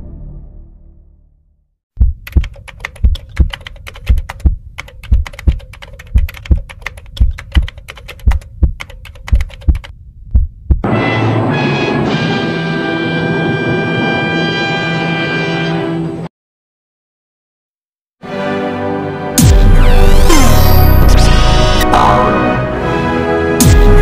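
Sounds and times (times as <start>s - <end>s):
heartbeat double thump: 2.0s - 10.8s
keyboard typing clicks: 2.2s - 9.9s
music with brass and timpani: 10.8s - 16.1s, 21.8s - 24.0s.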